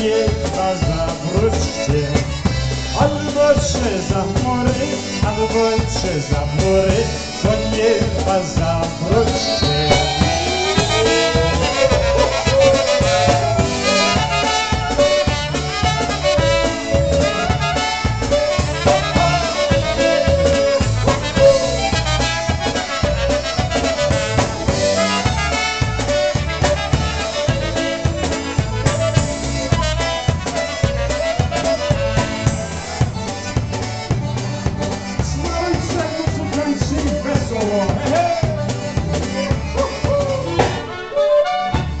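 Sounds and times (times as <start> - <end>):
brass instruments: 0.0 - 42.0
drum kit oom-pah beat: 0.0 - 42.0
clarinet melody: 8.8 - 35.7, 37.7 - 42.0.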